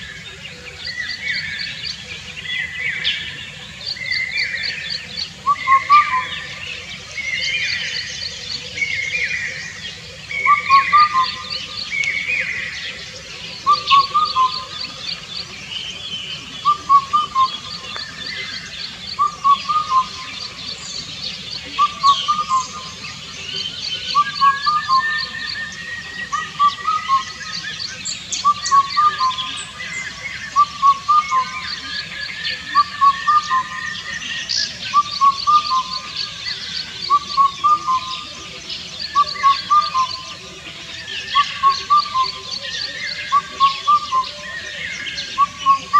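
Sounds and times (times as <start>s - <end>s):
cuckoo hooting song: 0.0s - 45.9s
high bird chirps: 16.6s - 21.0s, 23.9s - 38.3s.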